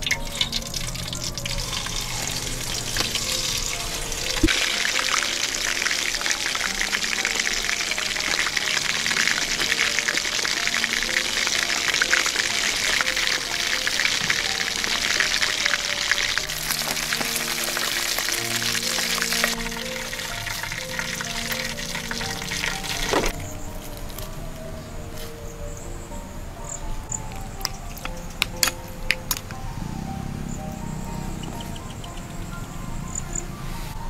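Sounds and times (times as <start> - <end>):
fish frying in hot oil: 0.0 - 23.4
background music: 0.0 - 34.0.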